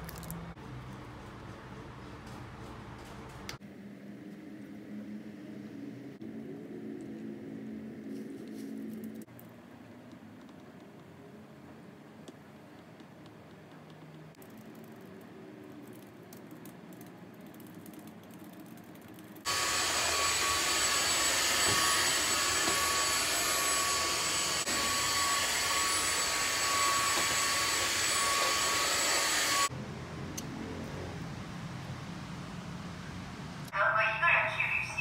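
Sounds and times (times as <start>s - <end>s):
laptop keyboard typing: 13.2s - 19.5s
vacuum cleaner running: 19.5s - 29.8s.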